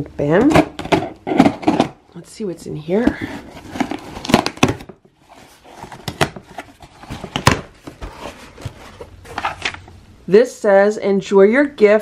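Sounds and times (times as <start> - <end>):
cardboard rustling: 0.8 - 2.0, 2.9 - 9.9.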